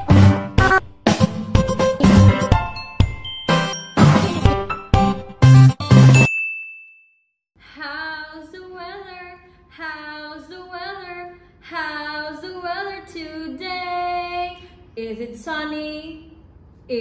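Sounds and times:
chime tone: 2.7s - 4.5s, 6.1s - 7.4s
woman singing children's song: 7.6s - 16.3s.

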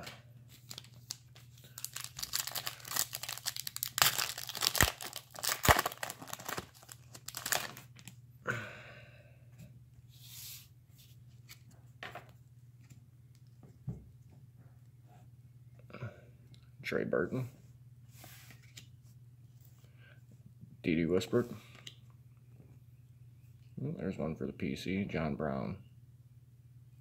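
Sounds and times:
cards rustling: 0.5s - 8.1s
foil wrapper crinkling and tearing: 0.6s - 8.1s.

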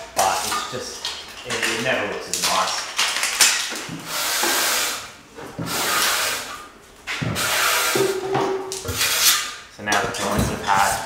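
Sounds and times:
trowel scraping joint compound: 4.0s - 6.6s, 7.2s - 9.6s.

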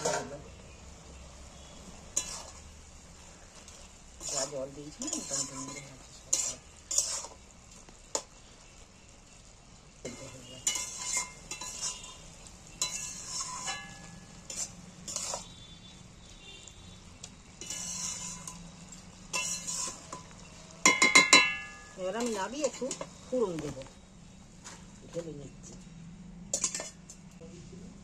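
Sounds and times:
spatula scraping metal pan: 0.0s - 0.5s, 1.6s - 2.8s, 3.6s - 7.4s, 10.0s - 16.4s, 17.5s - 23.2s, 26.5s - 27.1s
light sizzle: 0.0s - 28.0s.

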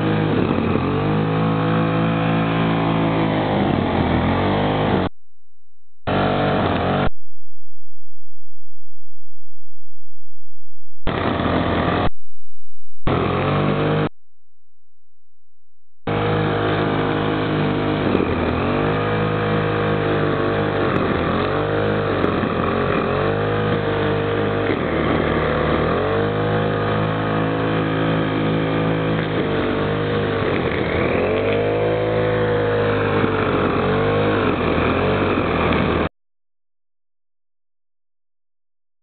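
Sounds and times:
brush cutter engine running: 0.0s - 5.1s, 6.1s - 7.1s, 11.1s - 12.1s, 13.1s - 14.1s, 16.1s - 36.1s.

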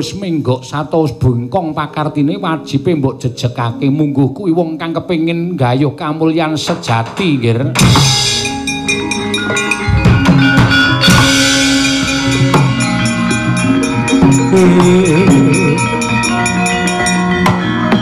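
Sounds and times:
drum strokes: 7.8s - 18.0s
gamelan ringing metal tones: 7.8s - 18.0s.

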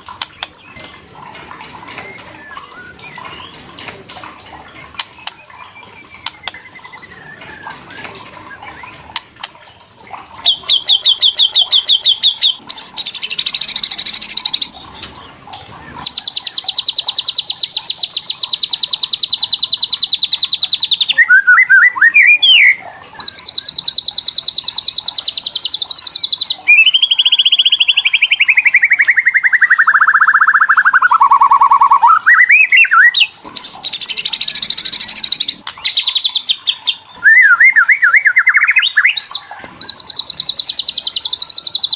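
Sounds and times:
bird rattling calls: 22.6s - 37.2s.

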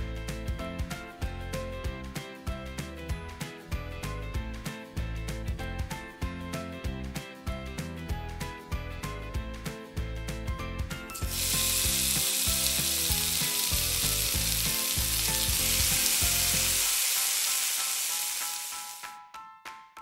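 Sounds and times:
background music: 0.0s - 20.0s
cutlet deep-frying in oil: 11.1s - 19.1s.

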